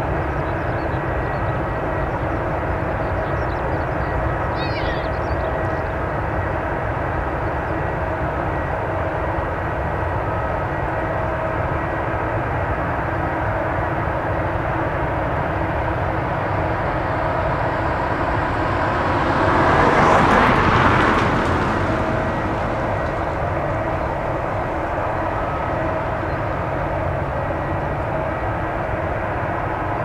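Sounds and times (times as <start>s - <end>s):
distant jet engines rumbling: 0.0s - 30.0s
faint whining tones: 0.0s - 30.0s
rushing noise: 13.0s - 30.0s.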